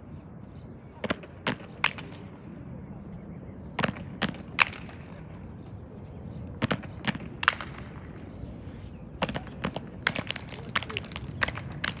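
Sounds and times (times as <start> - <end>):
sharp slaps and stomps: 6.6 - 8.0.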